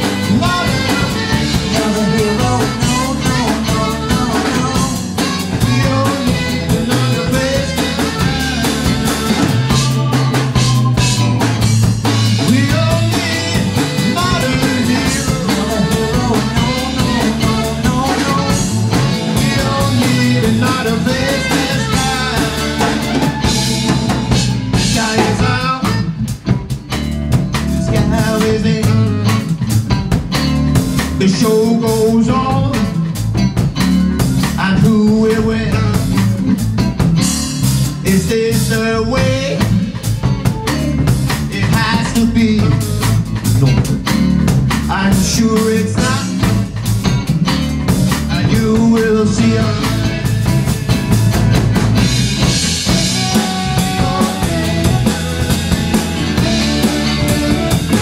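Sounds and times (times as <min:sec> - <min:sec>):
saxophone: 0:00.0 - 0:26.6, 0:48.6 - 0:58.0
drum kit beat: 0:00.0 - 0:58.0
electric guitar: 0:00.0 - 0:58.0
keyboard: 0:00.0 - 0:58.0.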